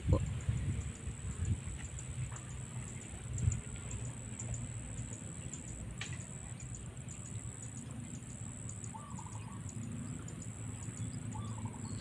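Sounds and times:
warbling bird call: 0:08.5 - 0:12.0.

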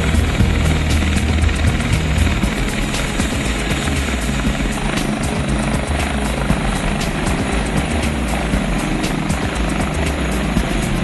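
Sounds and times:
helicopter engine and rotor: 0:00.0 - 0:11.0.

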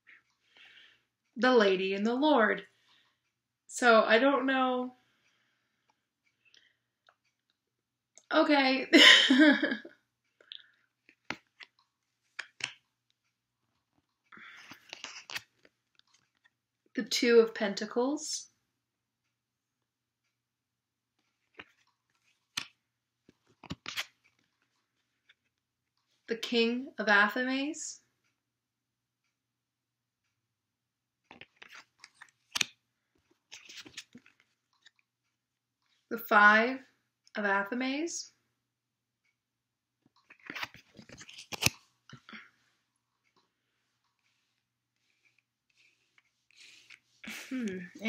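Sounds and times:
rustle of cards: 0:14.4 - 0:16.5, 0:21.2 - 0:25.5, 0:31.3 - 0:35.1, 0:40.2 - 0:41.9, 0:44.2 - 0:47.3
cards tapping and clicking: 0:21.5 - 0:24.2, 0:31.3 - 0:32.8, 0:40.3 - 0:41.8.

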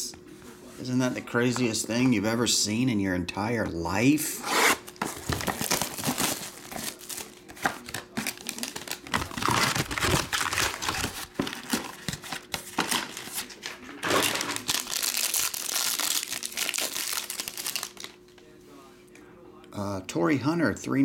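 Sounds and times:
foil wrappers crinkling: 0:04.8 - 0:18.2.

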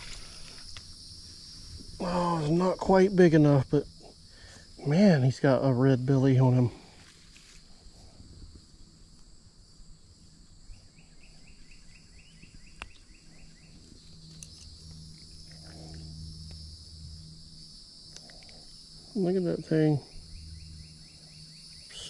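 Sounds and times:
insects droning: 0:00.0 - 0:22.0
faint clicks: 0:18.1 - 0:18.7.

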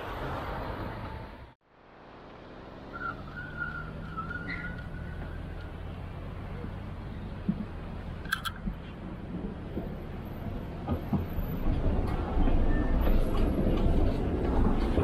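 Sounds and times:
tram wheels rumbling on rails: 0:08.6 - 0:15.0.

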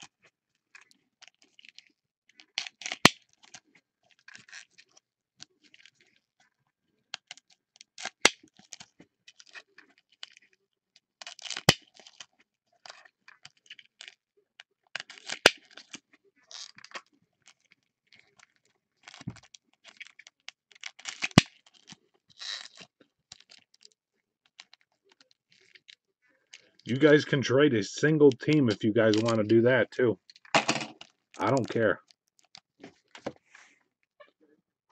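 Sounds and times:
foil wrappers crinkling and tearing: 0:15.0 - 0:23.9.

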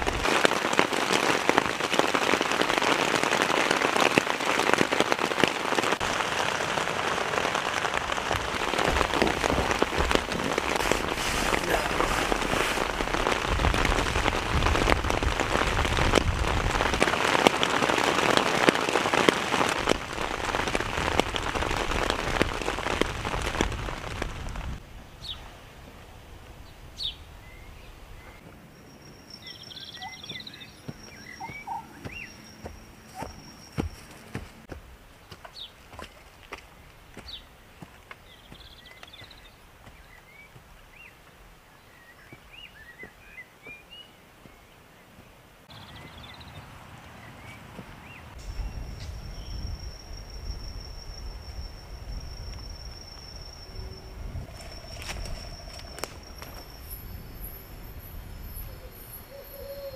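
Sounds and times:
heavy rain: 0:00.0 - 0:27.0, 0:45.6 - 0:59.9
bird chirps: 0:27.0 - 0:34.6, 0:45.7 - 0:59.9.

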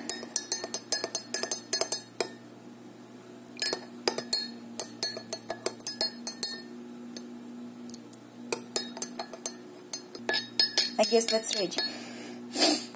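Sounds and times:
teaspoon clinking in ceramic mug: 0:03.6 - 0:06.7, 0:08.6 - 0:12.0.

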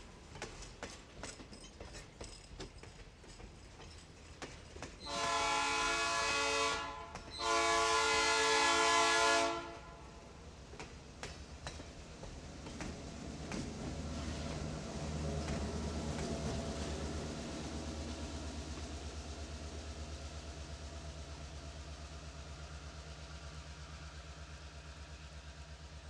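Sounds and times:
train wheels clicking over rail joints: 0:00.0 - 0:09.0, 0:09.6 - 0:22.6
diesel locomotive rumbling: 0:00.0 - 0:26.0
train horn blasts: 0:05.0 - 0:10.2.

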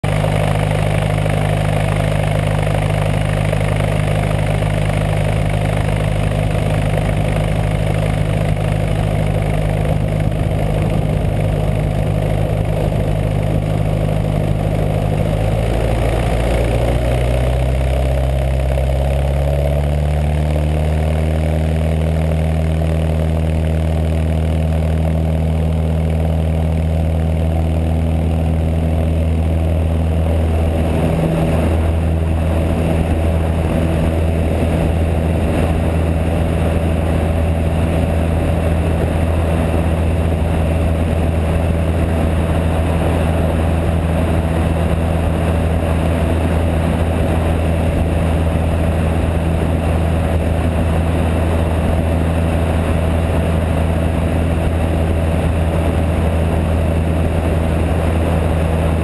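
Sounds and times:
propeller plane engine running: 0:00.0 - 0:59.0.

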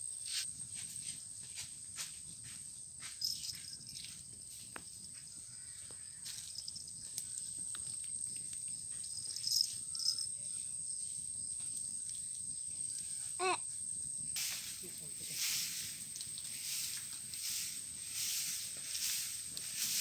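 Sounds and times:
insects droning: 0:00.0 - 0:20.0
wood fire crackling: 0:06.0 - 0:13.2, 0:13.8 - 0:20.0.

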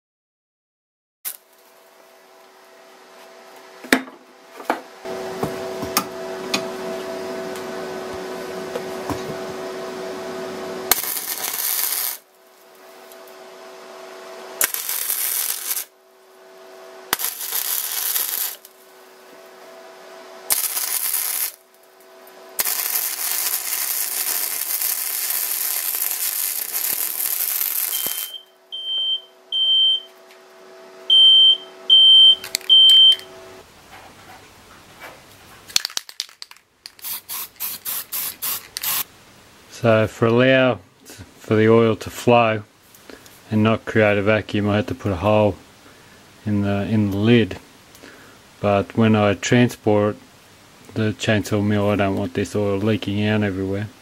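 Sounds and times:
welder arc sizzling: 0:01.3 - 0:01.7, 0:08.4 - 0:13.4, 0:14.5 - 0:16.0, 0:16.7 - 0:19.6, 0:20.4 - 0:28.5, 0:37.0 - 0:39.1
steady welder hum: 0:01.3 - 0:03.9, 0:04.5 - 0:33.8, 0:36.9 - 0:54.0
short high beeps: 0:27.9 - 0:30.1, 0:31.1 - 0:33.3
spray-paint can rattling: 0:35.8 - 0:39.0.

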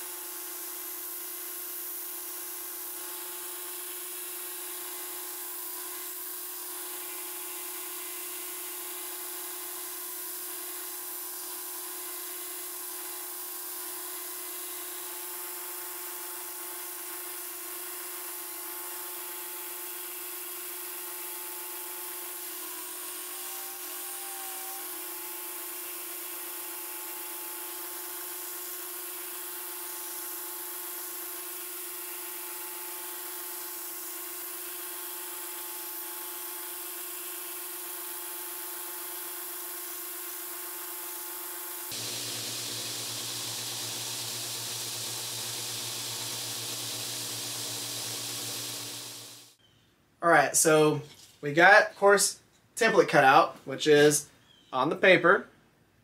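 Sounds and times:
belt grinder humming and whining: 0:16.9 - 0:39.2, 0:41.8 - 0:49.5.

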